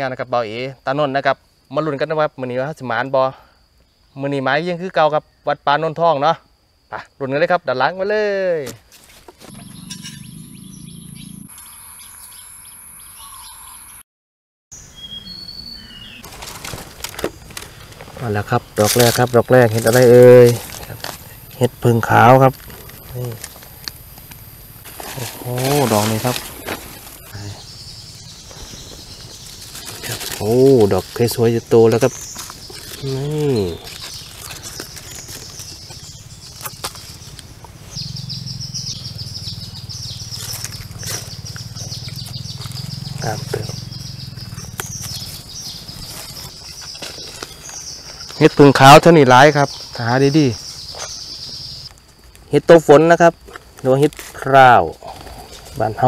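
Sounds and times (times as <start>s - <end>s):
insect chorus pulsing: 0.0s - 14.0s, 14.8s - 56.0s
birds chirping: 9.4s - 14.0s, 14.7s - 52.0s
low fluttering hum: 9.5s - 11.5s
steady high-pitched tone: 9.6s - 12.5s
whistled bird notes: 9.6s - 14.0s, 14.8s - 16.3s.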